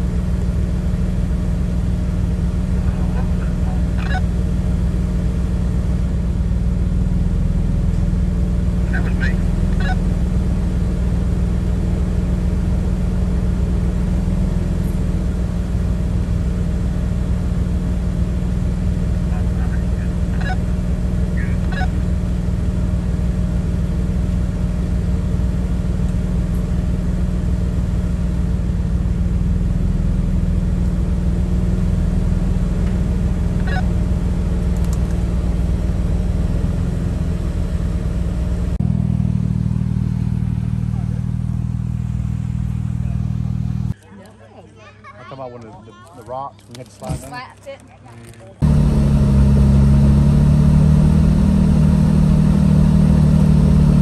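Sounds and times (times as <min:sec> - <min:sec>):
car engine running: 0:00.0 - 0:44.0, 0:46.3 - 0:54.0.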